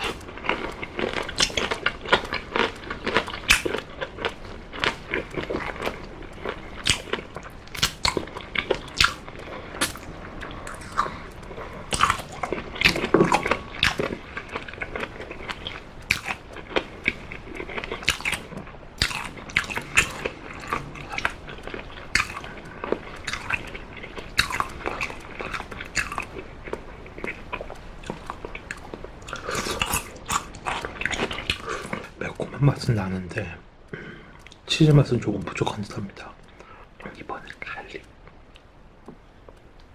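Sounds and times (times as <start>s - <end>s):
wet mouth clicks and smacks: 0.0s - 32.2s
chewing meat: 0.0s - 39.9s
crunching pickled radish: 0.0s - 39.9s.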